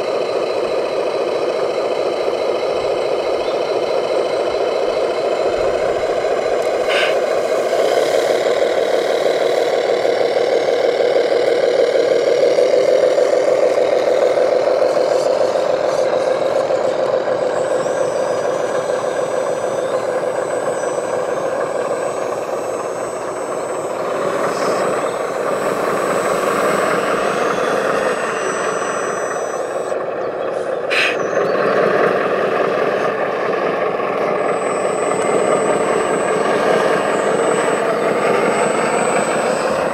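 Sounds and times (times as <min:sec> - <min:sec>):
model truck motors running: 0:00.0 - 0:39.9.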